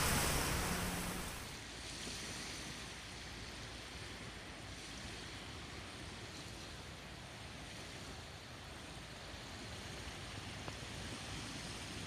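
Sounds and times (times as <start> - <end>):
strong wind: 0.0 - 1.6
waves on open water: 0.0 - 12.0.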